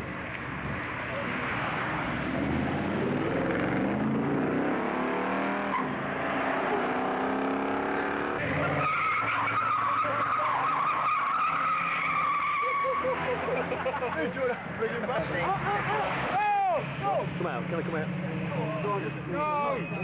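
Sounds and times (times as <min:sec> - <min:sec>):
car engine accelerating: 0:01.1 - 0:12.2
tyre squeal on tarmac: 0:08.4 - 0:13.2.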